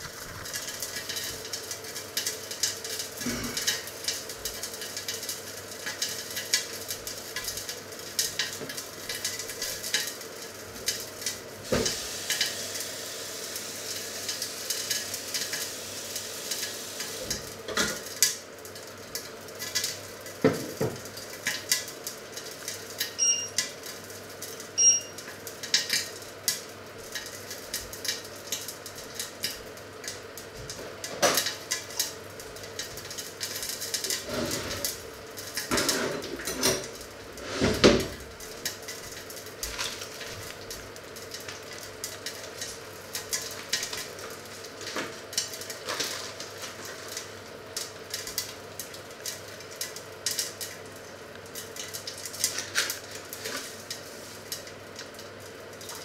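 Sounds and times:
kitchen pans and utensils clattering: 0:32.7 - 0:38.3, 0:43.3 - 0:47.2.

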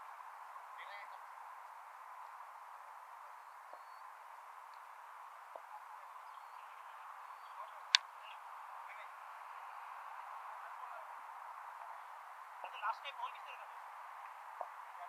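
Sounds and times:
outdoor hiss: 0:00.0 - 0:15.0
faint high chirps: 0:03.4 - 0:04.2.

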